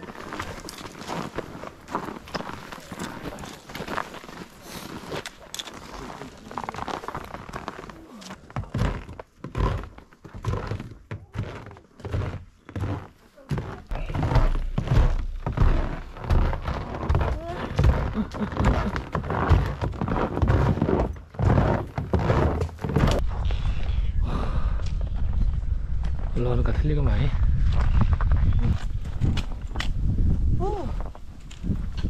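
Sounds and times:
footsteps on packed snow: 0.0 - 23.2.

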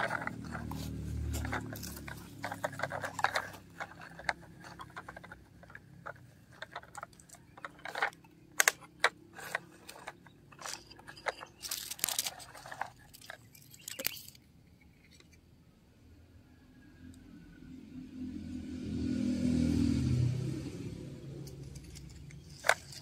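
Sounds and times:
toy scraping on gravelly dirt: 0.0 - 15.3, 21.4 - 23.0.

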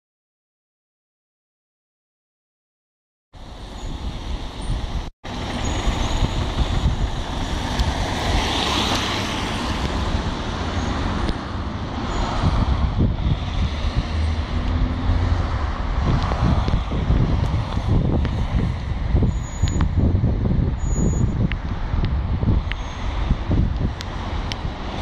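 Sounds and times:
heavy-vehicle engines: 3.4 - 25.0
traffic rumble: 3.4 - 25.0
wind buffeting microphone: 3.5 - 25.0.

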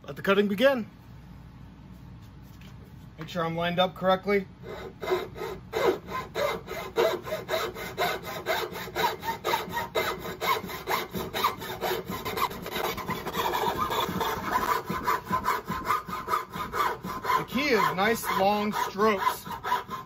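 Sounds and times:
hacksaw cutting wood: 4.6 - 20.0.

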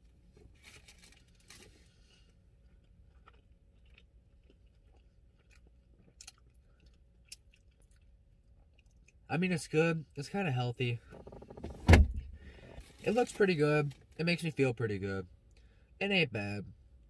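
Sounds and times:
chewing crispy food: 0.6 - 9.3.

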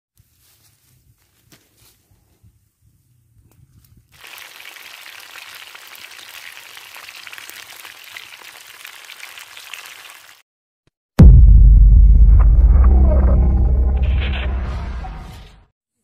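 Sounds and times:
food frying in oil: 4.2 - 10.4.

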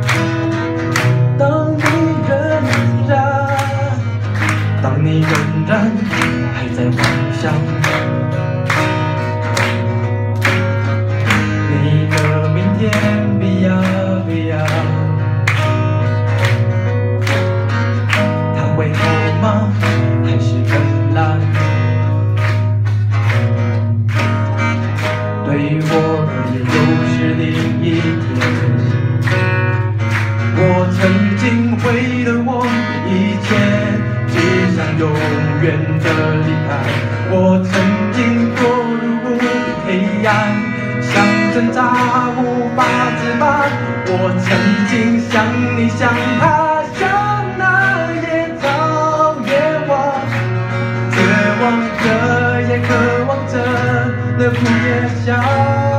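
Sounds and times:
acoustic guitars strummed: 0.0 - 55.9
man singing into microphone: 1.0 - 8.3, 11.4 - 15.4, 18.3 - 22.1, 25.4 - 29.1, 30.5 - 55.9.

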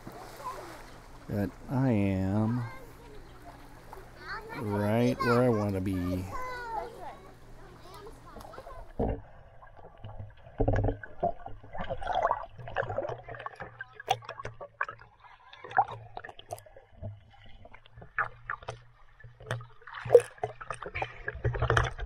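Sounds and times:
pool water splashing: 0.0 - 22.0.

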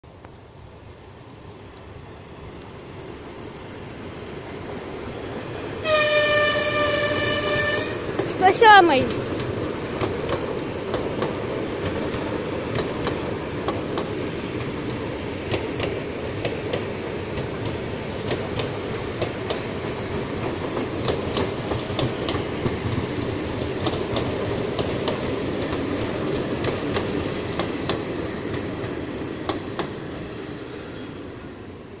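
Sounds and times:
train rolling past: 0.0 - 32.0
wheels clacking over rail joints: 4.4 - 30.2.

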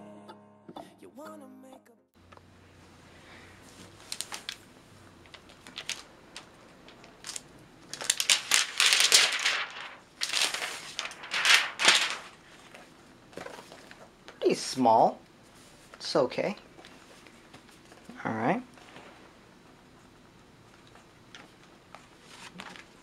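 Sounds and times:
plastic wrap rustling: 3.6 - 14.1.

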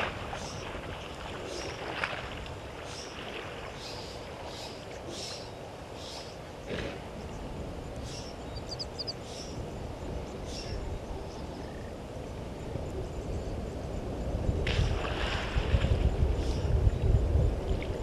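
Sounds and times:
water splashing and sloshing: 0.0 - 9.1, 14.6 - 18.0
high chirps: 8.6 - 9.2.

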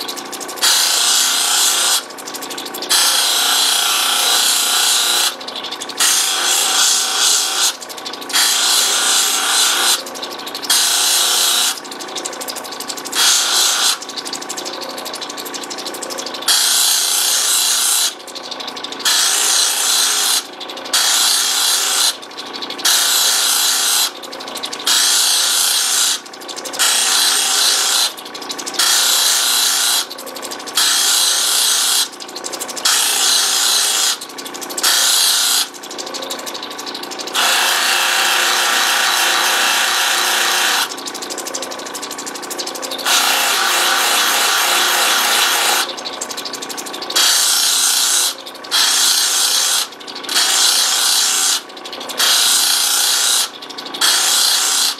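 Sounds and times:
stone hissing on polishing wheel: 0.0 - 10.0, 10.6 - 11.8, 13.1 - 14.1, 16.2 - 18.2, 18.8 - 22.2, 22.8 - 24.2, 24.8 - 28.2, 28.8 - 30.2, 30.8 - 32.2, 32.8 - 35.8, 37.3 - 40.9, 43.0 - 45.9, 47.0 - 54.9.

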